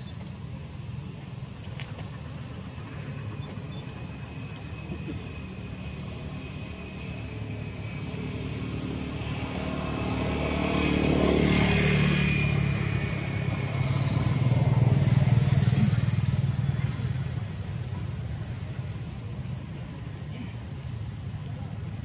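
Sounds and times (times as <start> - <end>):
vehicle engine passing by: 5.4 - 19.7.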